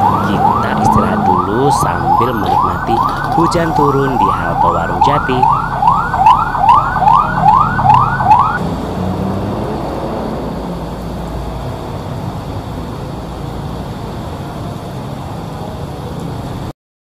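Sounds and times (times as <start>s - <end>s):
cars passing on wet road: 0.0s - 16.7s
fire engine siren whooping: 0.0s - 16.7s
heavy rain hissing: 8.6s - 16.7s.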